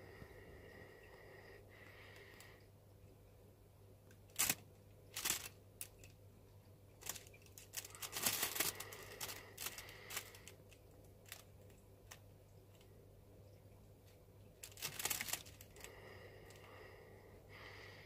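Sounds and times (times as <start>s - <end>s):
plastic bag crinkling: 4.3s - 6.1s, 7.0s - 12.2s, 14.6s - 16.7s.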